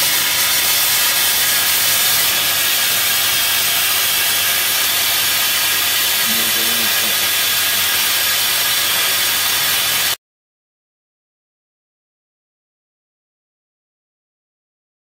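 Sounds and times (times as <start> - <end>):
brazing machine hiss: 0.0 - 10.2.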